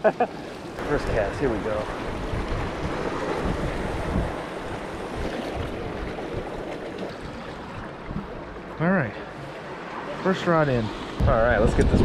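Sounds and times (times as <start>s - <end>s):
wind buffeting microphone: 0.8s - 8.4s, 11.1s - 12.0s.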